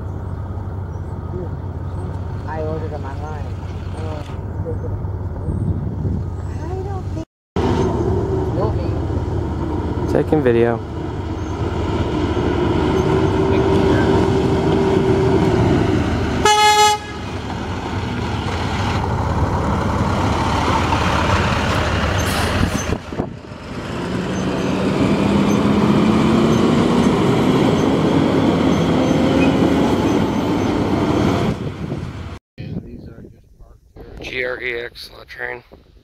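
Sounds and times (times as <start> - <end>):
heavy truck engine: 0.0 - 32.4
truck horn toot: 16.4 - 17.5.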